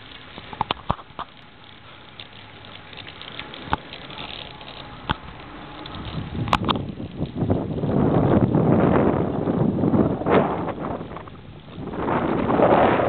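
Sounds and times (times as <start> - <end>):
wind noise on microphone: 3.5 - 13.0.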